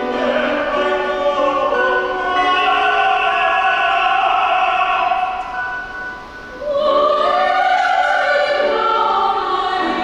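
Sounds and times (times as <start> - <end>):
operatic singing voice: 0.0 - 5.7.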